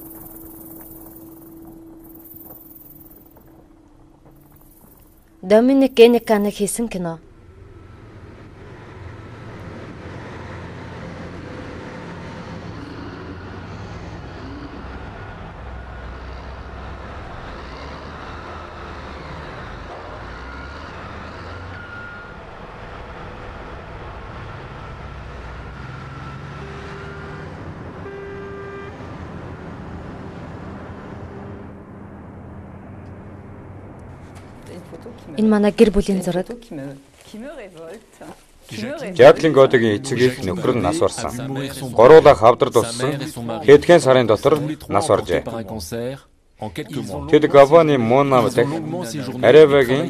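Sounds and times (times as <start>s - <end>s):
short beeps: 0.0s - 6.6s
diesel truck engines droning: 0.0s - 50.0s.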